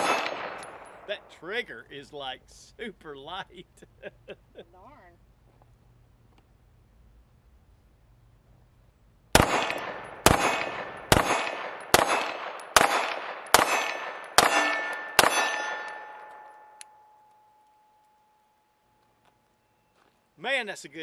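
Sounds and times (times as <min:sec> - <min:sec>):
pistol shots: 0:00.0 - 0:01.1, 0:09.3 - 0:16.5
metallic ringing: 0:13.5 - 0:19.0.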